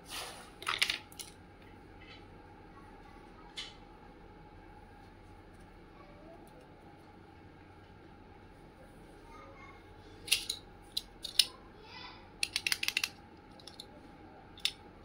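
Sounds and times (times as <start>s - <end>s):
plastic toy pieces clicking: 0.6s - 1.4s, 10.3s - 11.5s, 12.4s - 13.9s, 14.6s - 14.8s.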